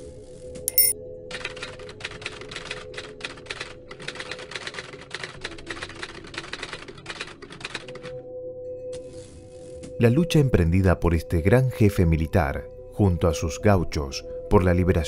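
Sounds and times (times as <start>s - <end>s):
typewriter keys clacking: 1.5s - 8.1s.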